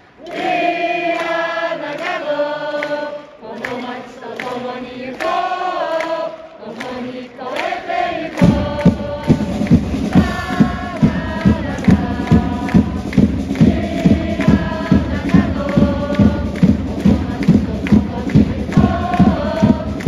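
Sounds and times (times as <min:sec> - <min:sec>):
crowd chanting in unison: 0:00.0 - 0:20.0
loud thumping beat: 0:08.2 - 0:20.0.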